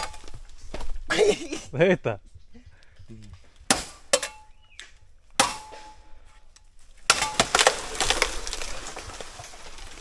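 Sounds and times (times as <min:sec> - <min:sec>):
bamboo cracking and crashing down: 0:00.0 - 0:01.1, 0:06.6 - 0:10.0
machete chopping bamboo: 0:03.7 - 0:04.5, 0:05.4 - 0:06.0, 0:07.0 - 0:08.1.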